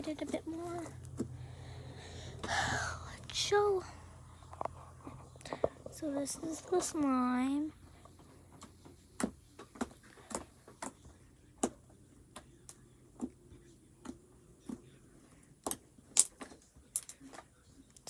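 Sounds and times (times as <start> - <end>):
slime clicking and popping: 15.6 - 17.2.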